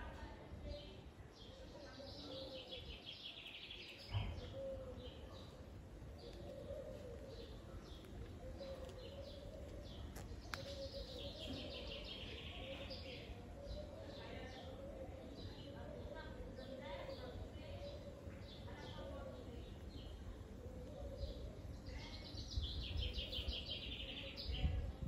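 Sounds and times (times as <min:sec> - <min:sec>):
songbirds chirping and trilling: 0:00.0 - 0:25.0
brief thump: 0:04.1 - 0:04.6.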